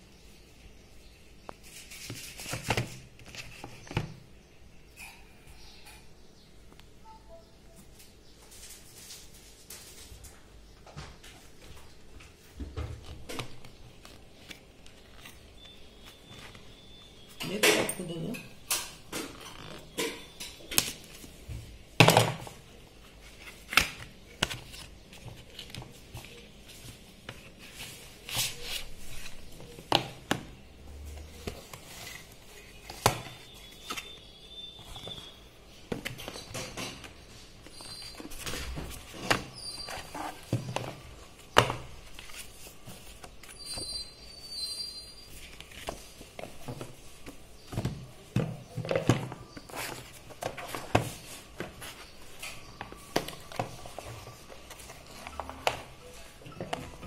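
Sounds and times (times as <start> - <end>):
cardboard and plastic handling: 19.1 - 44.1, 45.3 - 57.0.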